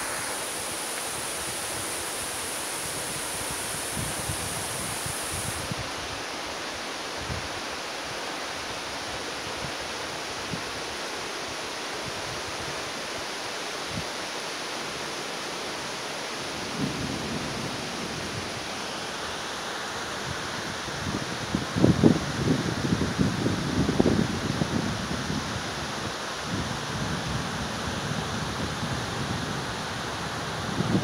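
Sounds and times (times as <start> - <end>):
heavy rain pouring: 0.0 - 6.8, 14.9 - 31.0.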